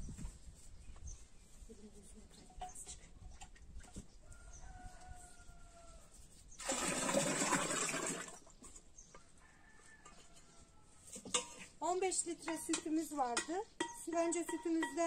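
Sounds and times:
yogurt pouring into metal churn: 6.6 - 8.4.

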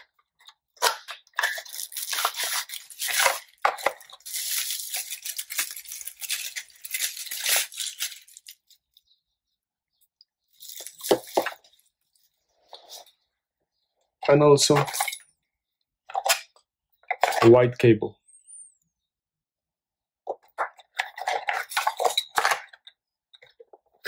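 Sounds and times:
cardboard and plastic crinkling: 0.8 - 8.8, 10.6 - 11.8.

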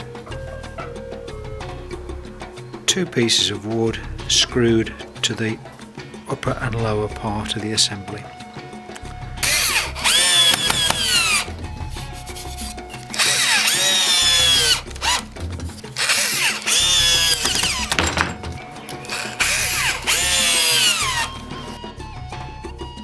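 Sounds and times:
drill driving screws into wood: 9.4 - 11.5, 13.0 - 15.3, 15.9 - 18.4, 19.0 - 21.4.

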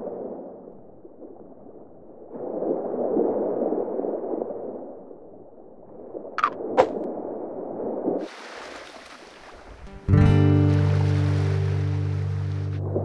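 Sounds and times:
muffled underwater rushing: 5.9 - 13.0.

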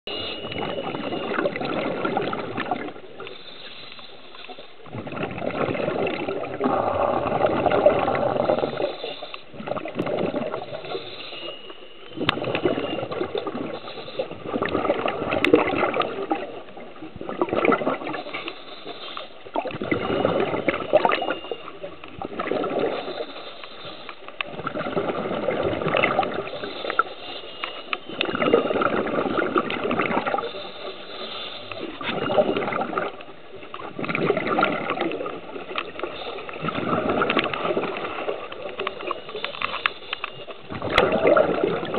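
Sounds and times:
scuba regulator bubbling exhalation: 0.1 - 3.3, 4.8 - 11.1, 12.1 - 23.4, 24.5 - 27.2, 28.0 - 31.0, 31.6 - 33.2, 33.8 - 39.3, 40.6 - 41.9
hissing inhales: 3.2 - 4.7, 8.4 - 9.5, 18.2 - 19.3, 22.9 - 24.2, 30.4 - 32.0.

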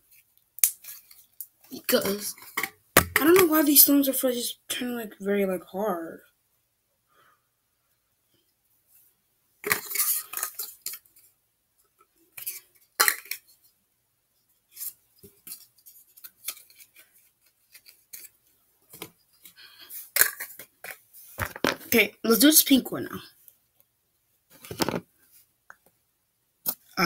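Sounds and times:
plastic containers clattering: 9.6 - 11.0, 20.1 - 22.0, 24.6 - 25.1.

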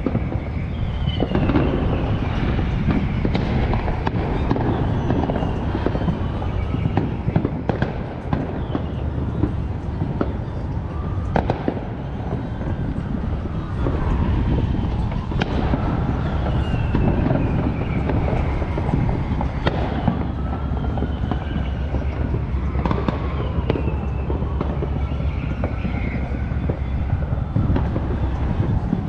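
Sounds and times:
fireworks bangs and crackles: 0.0 - 29.0
whistling fireworks: 0.0 - 29.0
low rumble: 9.0 - 22.8, 24.3 - 29.0.

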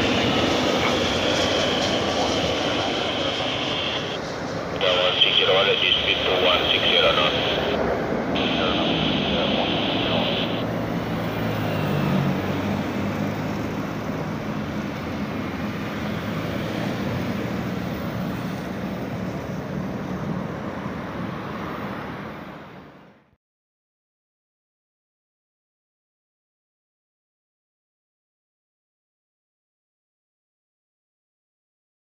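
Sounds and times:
jet engine noise: 0.0 - 23.2
high jet engine whine: 0.0 - 23.3.

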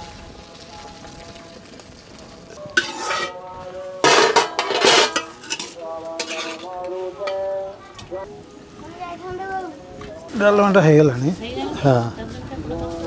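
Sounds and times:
metal pots clanking and scraping: 2.7 - 8.1.

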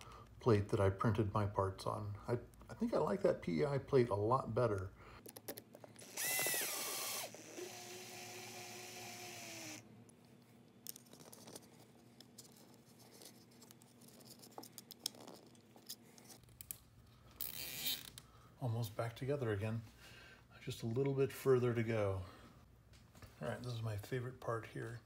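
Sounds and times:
whirring hum: 6.0 - 10.2.

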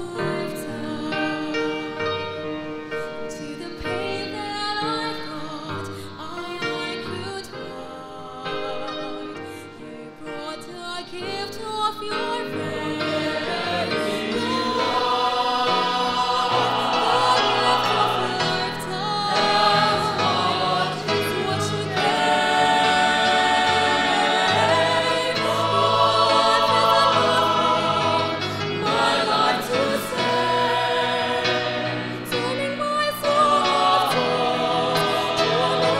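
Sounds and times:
mixed choir singing: 0.0 - 2.0, 9.9 - 35.9.

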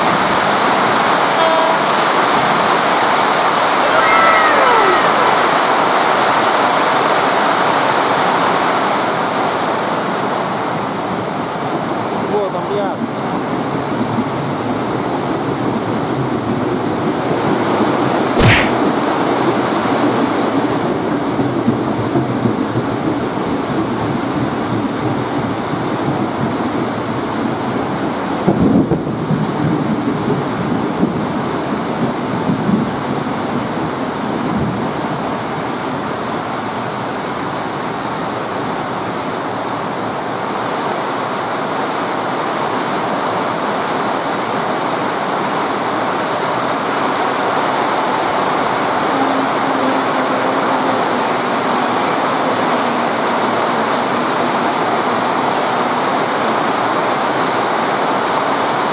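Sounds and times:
heavy rain pouring: 0.0 - 40.3, 42.9 - 58.9
low thumps: 18.4 - 18.8
electric train passing: 47.2 - 58.4.

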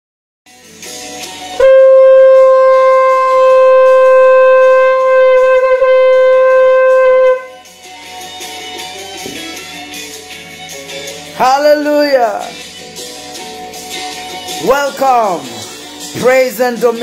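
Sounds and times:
quiet background music: 0.5 - 17.0
shofar long note: 1.5 - 7.7.

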